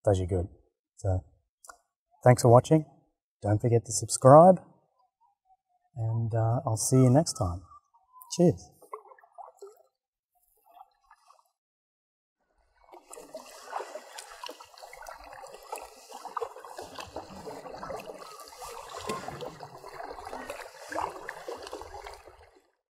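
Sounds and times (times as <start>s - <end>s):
kayak paddle splashing water: 8.7s - 11.6s, 12.7s - 22.8s.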